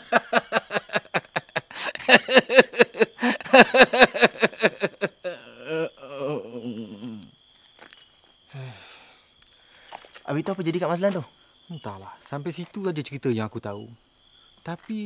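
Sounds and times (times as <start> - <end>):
man laughing: 0.0 - 7.3
crickets chirring: 0.0 - 15.0.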